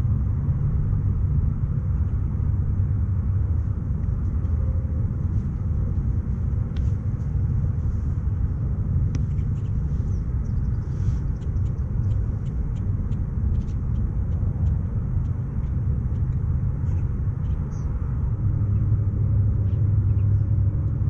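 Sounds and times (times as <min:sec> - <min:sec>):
low outdoor rumble: 0:00.0 - 0:21.0
faint light ticks: 0:09.1 - 0:09.7.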